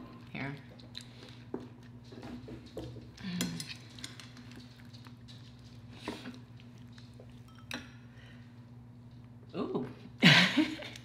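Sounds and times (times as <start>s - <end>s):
wet squishes of food: 0.0s - 2.3s, 3.5s - 7.5s.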